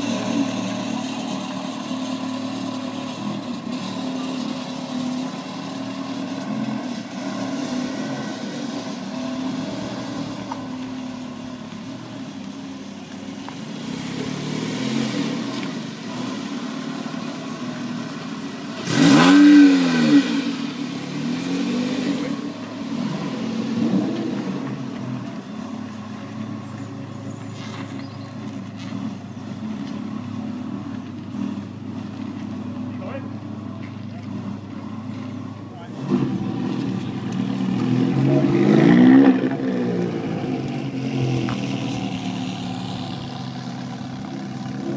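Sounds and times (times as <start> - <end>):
car engines idling: 0.0 - 44.9
sports car engine revving: 13.6 - 44.9
low steady engine note: 23.8 - 38.0.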